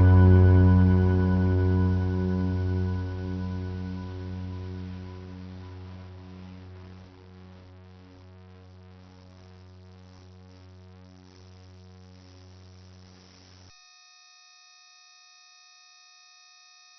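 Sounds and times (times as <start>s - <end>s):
synthesized ambient music: 0.0s - 7.2s
steady electronic chord: 0.0s - 7.7s.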